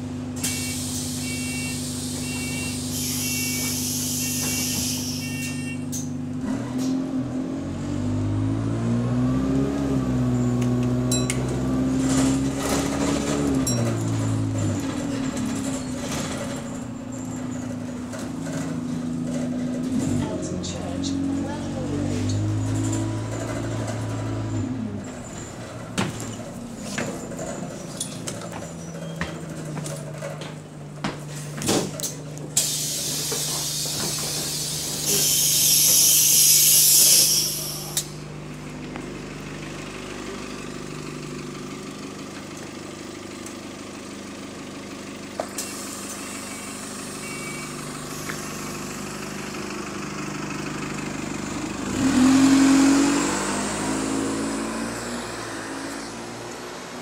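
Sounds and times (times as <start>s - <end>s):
diesel bus engine running: 0.0s - 57.0s
bus air brakes hissing: 0.4s - 6.0s, 32.6s - 38.2s, 45.5s - 49.0s.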